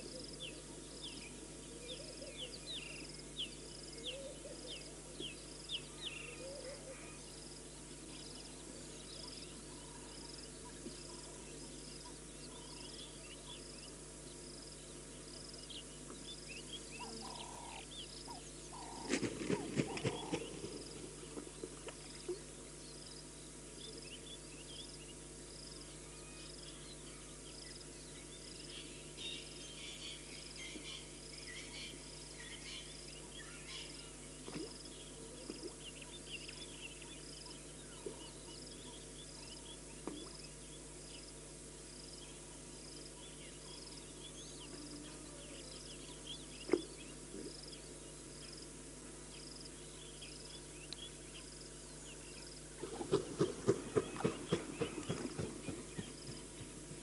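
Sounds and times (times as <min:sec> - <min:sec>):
insect high chirp: 0:00.0 - 0:56.9.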